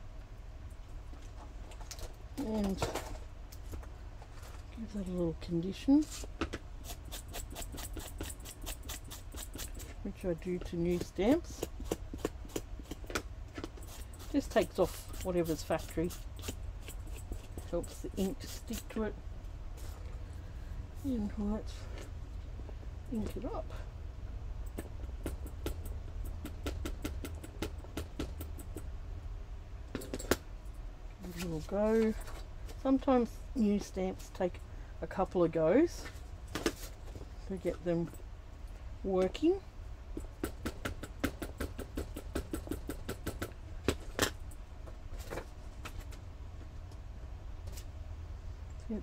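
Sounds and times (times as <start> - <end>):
low steady hum: 0.0 - 49.0.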